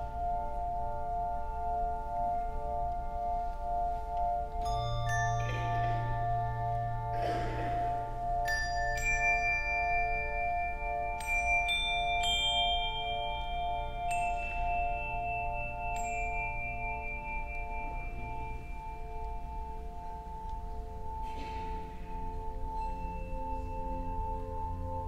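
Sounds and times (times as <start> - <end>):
low handbell chord pulsing: 0.0 - 25.0
higher handbells struck: 4.6 - 20.3.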